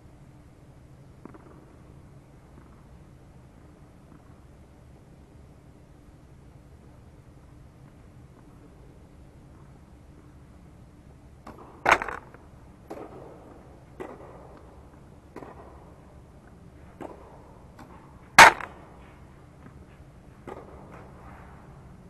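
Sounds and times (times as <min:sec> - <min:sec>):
tennis ball struck by racket: 0:17.8 - 0:18.9.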